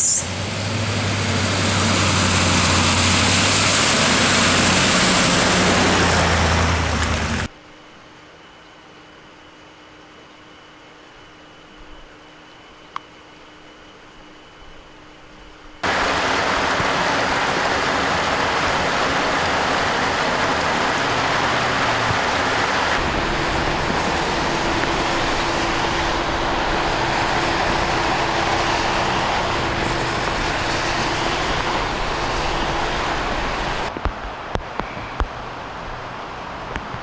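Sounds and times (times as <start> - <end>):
traffic on flooded road: 0.0 - 7.5, 15.8 - 37.0
heavy rain: 0.3 - 7.5, 15.8 - 37.0
water pouring into storm drain: 1.0 - 7.5, 15.8 - 33.9
faint steady hum: 7.5 - 17.7.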